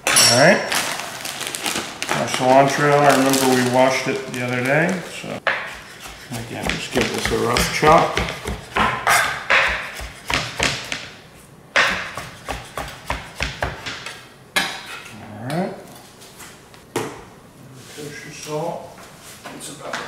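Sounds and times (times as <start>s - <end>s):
knife chopping on cutting board: 5.4s - 11.1s, 11.8s - 14.9s.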